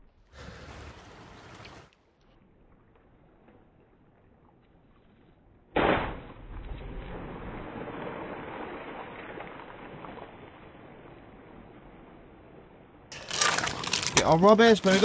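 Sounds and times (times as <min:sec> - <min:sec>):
sea water churning and fizzing: 0:00.3 - 0:01.9, 0:06.9 - 0:12.3, 0:13.1 - 0:15.0.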